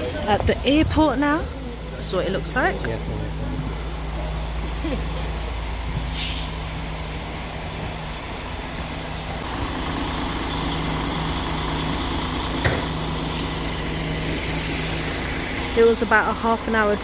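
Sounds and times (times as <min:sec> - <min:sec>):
diesel engine idling: 0:00.0 - 0:17.0
short hiss: 0:06.1 - 0:06.6.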